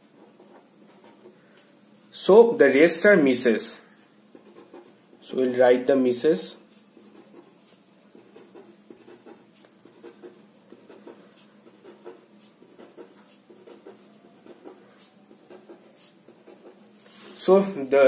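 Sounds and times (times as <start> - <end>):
marker pen scratching on paper: 0.2 - 1.4, 4.3 - 5.9, 6.7 - 17.7.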